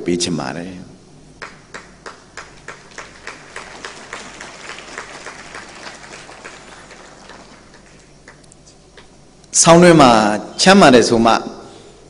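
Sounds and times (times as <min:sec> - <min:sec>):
audience applause: 0:01.4 - 0:08.5.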